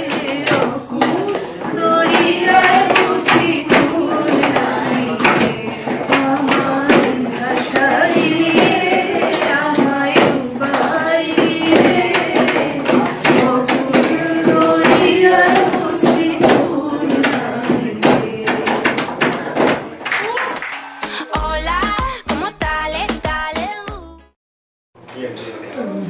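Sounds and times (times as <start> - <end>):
woman singing into microphone: 0.0 - 18.9, 21.1 - 24.2
sharp rhythmic taps: 0.0 - 20.8.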